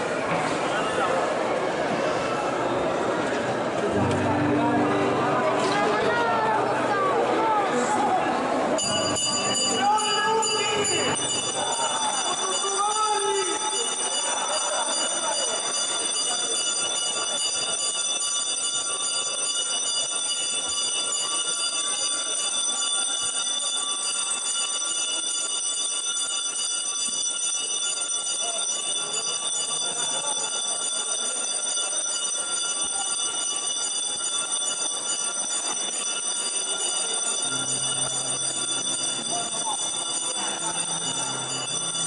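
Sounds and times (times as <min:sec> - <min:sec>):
crowd murmur: 0:00.0 - 0:42.0
bells ringing: 0:08.6 - 0:42.0.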